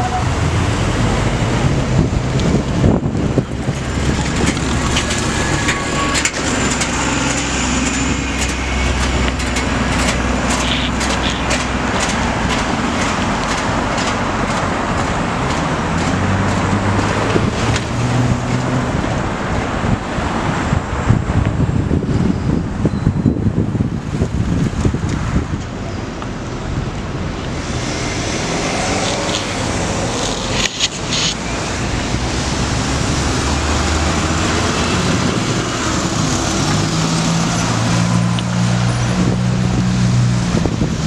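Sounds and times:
bus driving off humming: 0:00.0 - 0:41.0
car traffic passing: 0:00.0 - 0:41.0.

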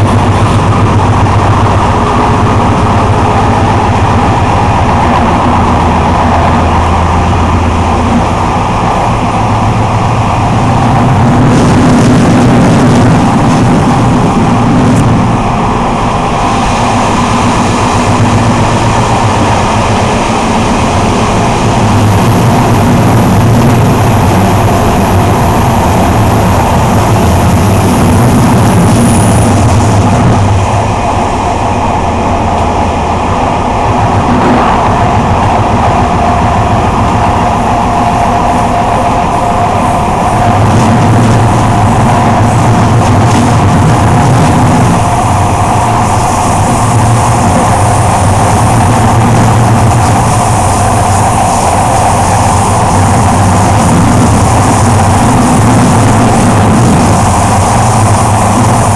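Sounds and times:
low hum: 0:00.0 - 0:58.9
train rumbling on rails: 0:00.0 - 0:58.9.

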